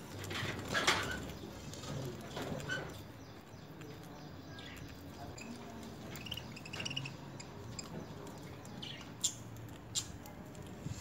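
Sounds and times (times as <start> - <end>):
budgerigars chirping: 6.1 - 8.1.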